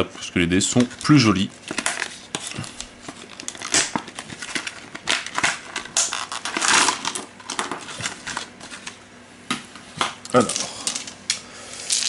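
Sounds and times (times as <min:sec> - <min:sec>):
plastic bag crinkling: 0:00.8 - 0:08.6.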